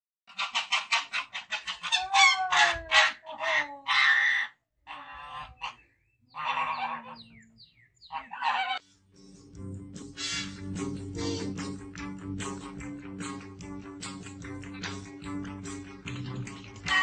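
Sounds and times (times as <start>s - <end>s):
goose honking: 0.3s - 7.4s, 8.0s - 8.8s.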